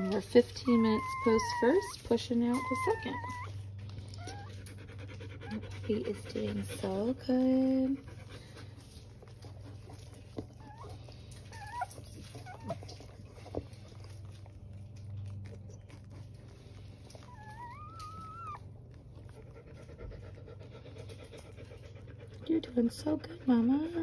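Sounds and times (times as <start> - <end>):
dog whimpering: 0.0 - 7.0, 10.5 - 13.1, 17.0 - 19.7.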